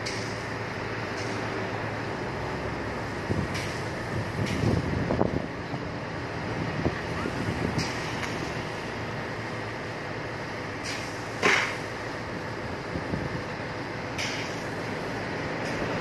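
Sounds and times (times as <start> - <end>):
fire engine pump running: 0.0 - 16.0
loud hiss: 6.5 - 13.0
high-pressure water jet spraying: 10.8 - 12.0.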